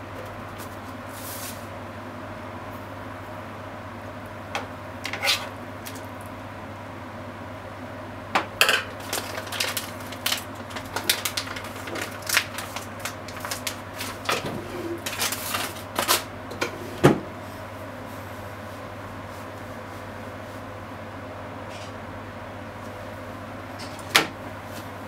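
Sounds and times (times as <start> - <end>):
steady low hum: 0.0 - 25.0
meat crackling in frying pan: 8.8 - 14.4.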